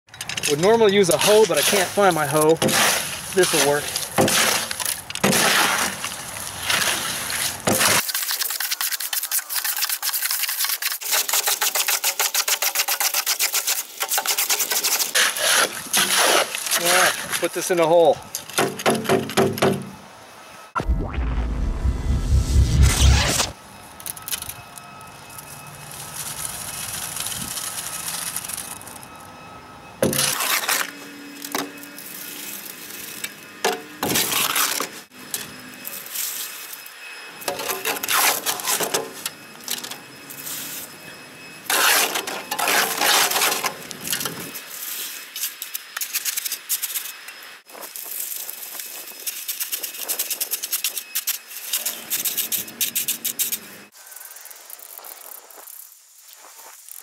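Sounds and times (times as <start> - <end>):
shovel scraping wet concrete: 0.2 - 18.1, 30.0 - 31.0, 34.0 - 35.0, 37.5 - 39.3, 41.7 - 47.1.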